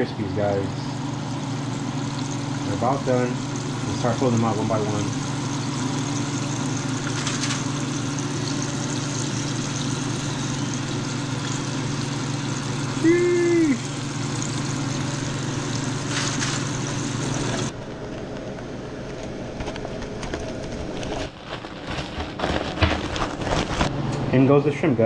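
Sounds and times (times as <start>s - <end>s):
fish deep-frying in oil: 1.0s - 17.7s.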